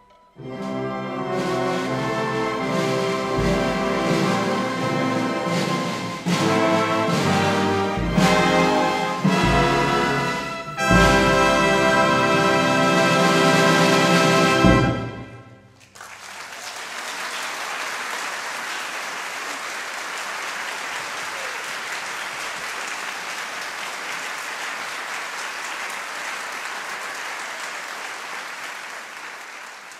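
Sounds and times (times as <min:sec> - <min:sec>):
orchestra chord: 0:00.1 - 0:15.5
audience applause: 0:15.8 - 0:29.9.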